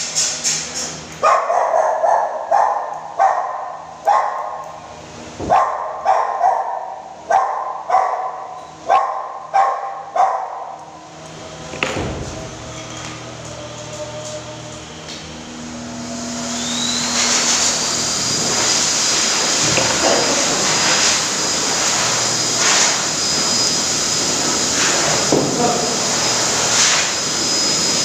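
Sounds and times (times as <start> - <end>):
dog barking: 1.2 - 4.6, 5.4 - 10.8.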